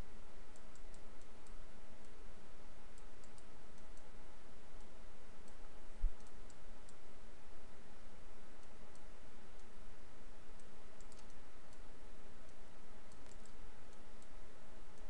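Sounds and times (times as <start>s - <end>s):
low background hum: 0.0s - 15.0s
computer mouse clicks: 0.5s - 2.2s, 2.9s - 4.1s, 4.8s - 7.0s, 8.6s - 9.8s, 10.5s - 15.0s.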